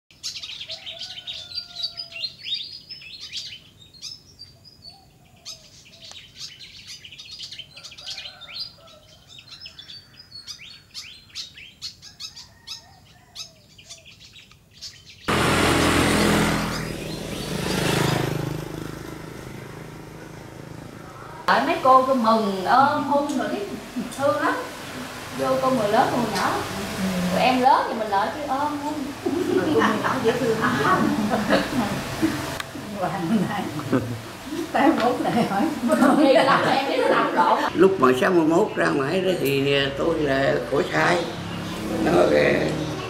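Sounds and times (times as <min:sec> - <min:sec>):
birds chirping: 0:00.1 - 0:43.0
loud rushing noise: 0:15.3 - 0:23.0.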